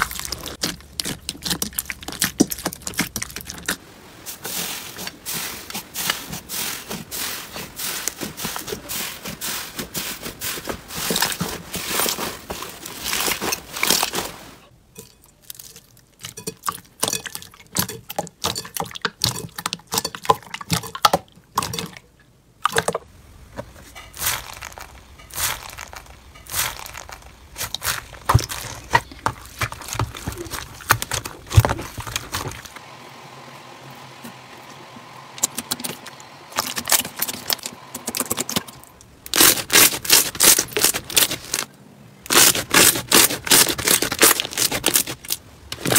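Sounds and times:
crunchy slime being pressed: 0:00.0 - 0:03.8, 0:42.3 - 0:45.9
slime squishing and popping: 0:00.0 - 0:03.8.

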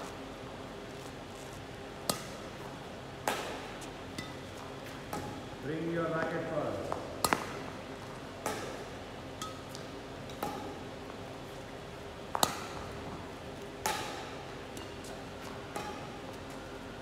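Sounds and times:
racket smacking shuttlecock: 0:02.0 - 0:05.4, 0:06.9 - 0:07.7, 0:08.4 - 0:10.9, 0:12.3 - 0:12.8, 0:13.6 - 0:16.6.

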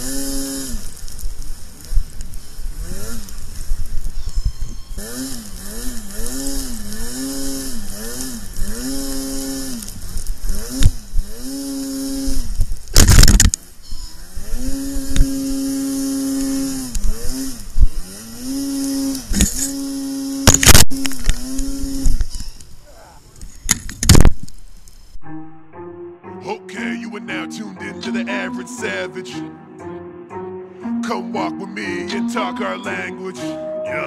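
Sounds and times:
snowmobile engine revving: 0:00.0 - 0:04.0, 0:05.0 - 0:22.5
steady rushing hiss: 0:00.0 - 0:25.2
loud burst of noise: 0:04.9 - 0:13.6, 0:14.3 - 0:22.3.

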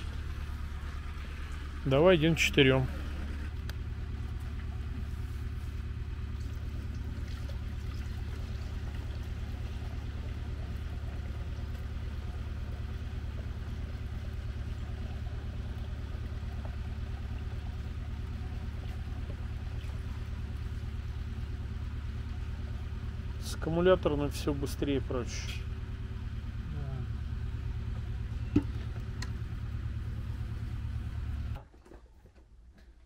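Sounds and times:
low mechanical hum: 0:00.0 - 0:33.0
liquid pouring into tank: 0:06.0 - 0:21.1.

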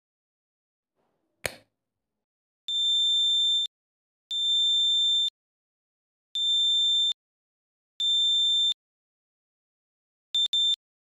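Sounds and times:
sharp click: 0:01.4 - 0:01.7
piezo buzzer beeping: 0:10.4 - 0:10.8.

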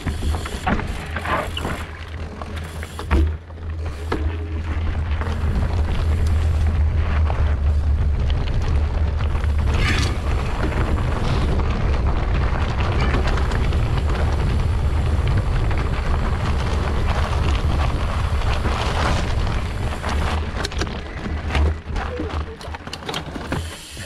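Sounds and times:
bike rattles and knocks: 0:00.0 - 0:24.0
wind buffeting microphone: 0:04.8 - 0:22.3.

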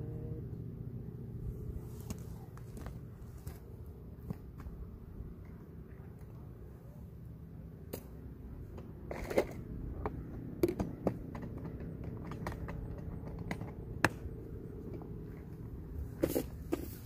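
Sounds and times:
low steady rumble: 0:00.0 - 0:17.0
sharp clicks and knocks: 0:08.7 - 0:15.5.

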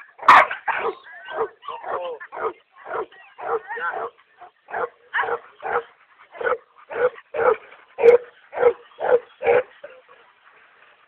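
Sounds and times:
dog barking: 0:00.2 - 0:04.1, 0:04.7 - 0:09.7.

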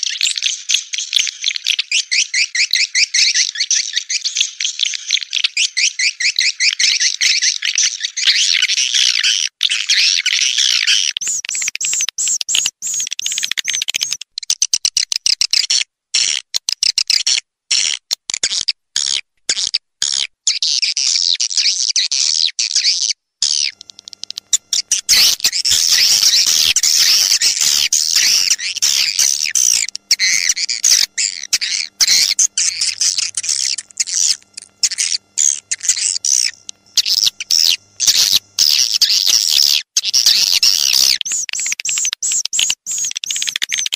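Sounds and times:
swiftlets twittering chirps: 0:23.5 - 0:41.8.

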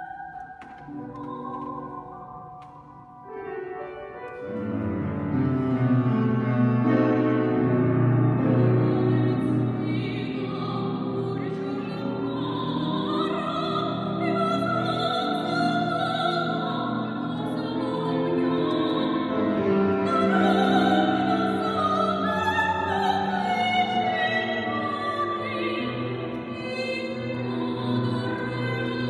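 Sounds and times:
woman singing operatically: 0:00.0 - 0:02.5, 0:08.6 - 0:29.0
piano accompaniment: 0:00.0 - 0:29.0.

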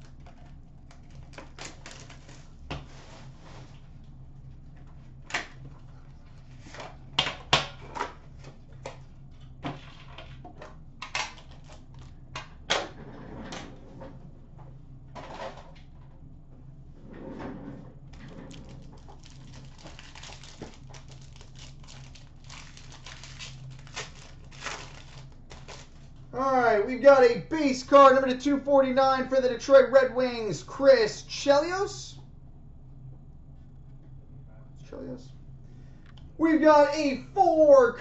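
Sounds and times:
steady low hum: 0:00.0 - 0:38.0
packaging rustling and scraping: 0:18.2 - 0:26.2.

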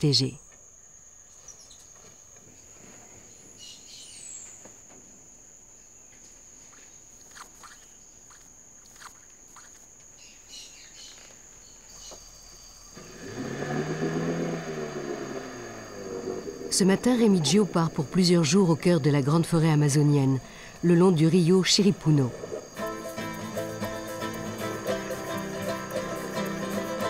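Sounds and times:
high-pitched insect trill: 0:05.8 - 0:13.0, 0:14.9 - 0:27.0
bird chirps: 0:06.6 - 0:12.9.

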